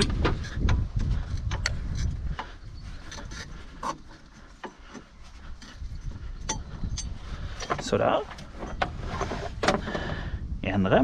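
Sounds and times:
rubber scraping on metal: 0:08.3 - 0:09.9.

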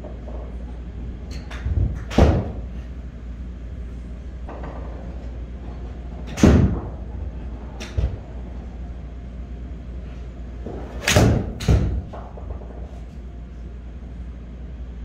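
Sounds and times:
smack: 0:11.0 - 0:11.9.

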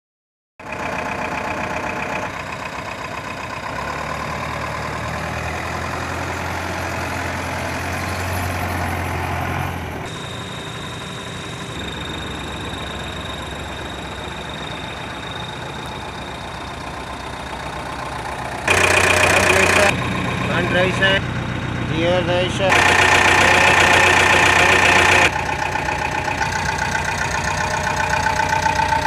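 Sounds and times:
diesel truck engine idling: 0:00.6 - 0:29.0
thin steady high tone: 0:10.1 - 0:17.5.

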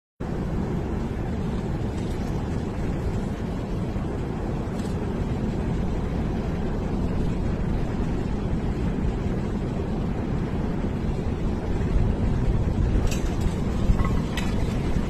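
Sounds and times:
potter's wheel rumbling: 0:12.7 - 0:15.0.

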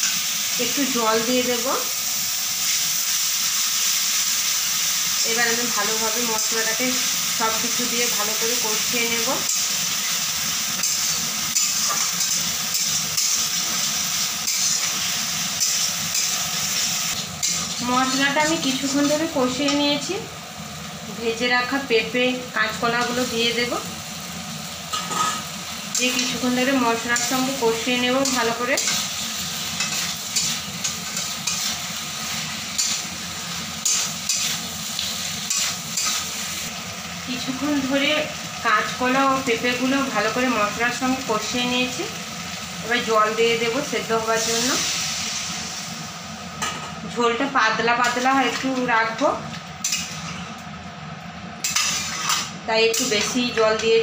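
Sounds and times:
paste sizzling in oil: 0:00.0 - 0:46.7, 0:51.6 - 0:53.6
spatula stirring and scraping: 0:14.4 - 0:19.2, 0:28.2 - 0:36.4, 0:51.6 - 0:53.3
metal spatula scraping pan: 0:14.4 - 0:19.3, 0:51.6 - 0:53.4.

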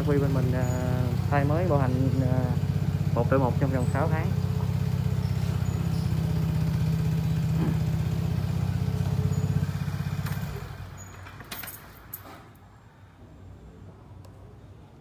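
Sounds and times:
scooter engine idling: 0:00.0 - 0:11.4.

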